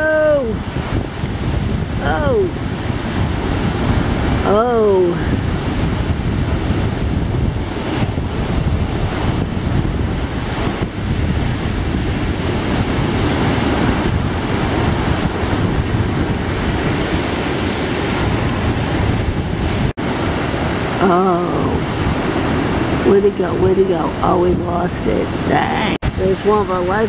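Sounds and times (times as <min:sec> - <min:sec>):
waves breaking: 0:00.0 - 0:27.0
wind buffeting microphone: 0:00.0 - 0:27.0.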